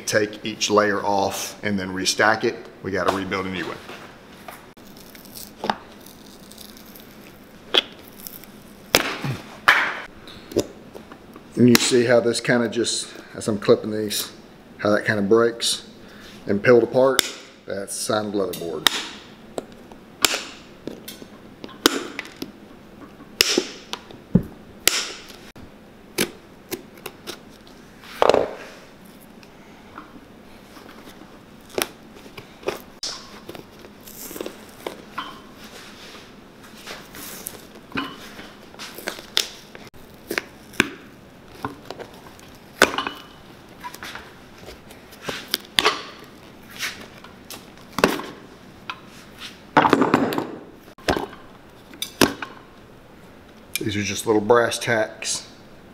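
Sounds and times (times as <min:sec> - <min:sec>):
leather cracking and tearing: 0:04.8 - 0:09.2.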